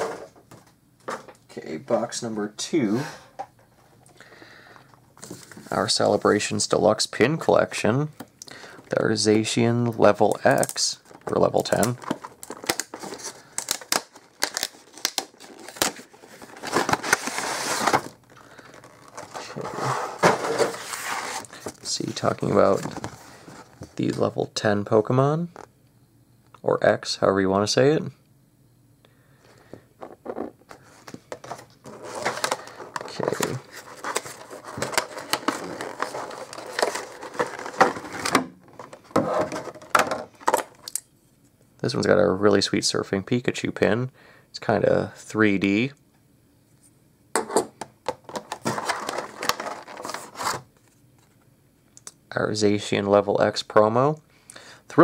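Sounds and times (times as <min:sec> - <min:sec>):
card and plastic crinkling: 0:10.0 - 0:24.2, 0:30.0 - 0:41.0, 0:48.1 - 0:51.3
plastic packaging crackling: 0:10.3 - 0:19.6, 0:31.4 - 0:41.0, 0:48.2 - 0:50.6.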